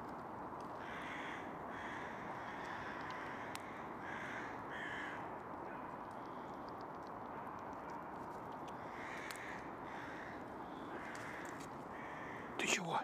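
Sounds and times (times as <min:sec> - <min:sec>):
steady background noise: 0:00.0 - 0:13.0
crows cawing: 0:00.8 - 0:05.9, 0:08.8 - 0:12.7.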